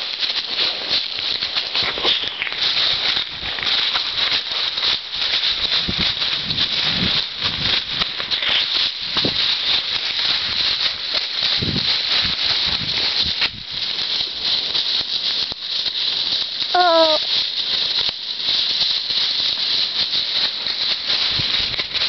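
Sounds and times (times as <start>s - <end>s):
hooves crunching dry leaves: 0.0s - 22.0s
short high call: 16.8s - 17.2s.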